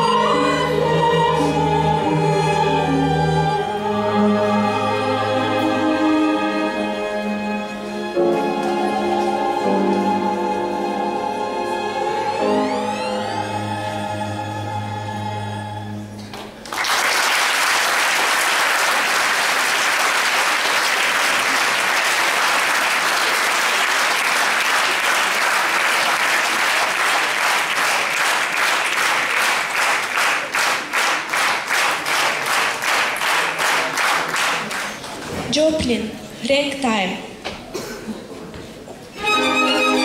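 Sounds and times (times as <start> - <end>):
audience applauding: 16.3 - 35.3.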